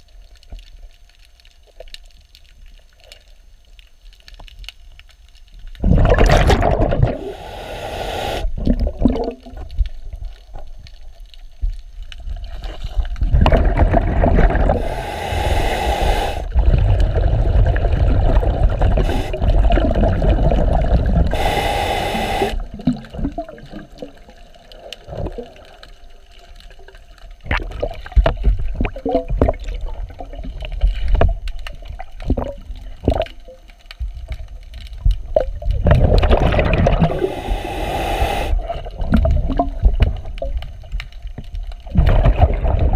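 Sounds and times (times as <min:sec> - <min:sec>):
underwater exhaled bubbles: 0:05.6 - 0:42.9
regulator hissing: 0:07.1 - 0:08.6, 0:14.6 - 0:16.6, 0:18.9 - 0:23.1, 0:37.0 - 0:38.8.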